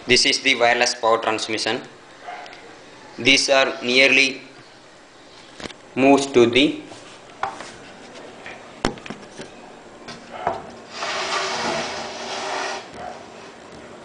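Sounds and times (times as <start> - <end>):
object scraping across wood: 10.9 - 13.2.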